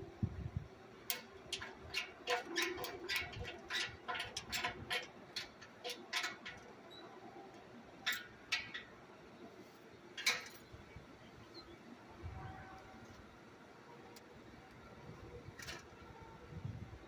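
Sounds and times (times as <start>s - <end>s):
hand tools clicking and tapping metal: 1.0s - 9.0s, 10.2s - 10.7s.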